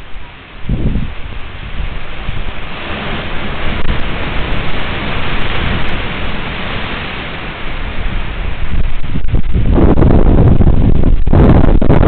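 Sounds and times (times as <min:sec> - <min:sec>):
rain: 0:00.0 - 0:12.0
wind buffeting microphone: 0:00.0 - 0:12.0.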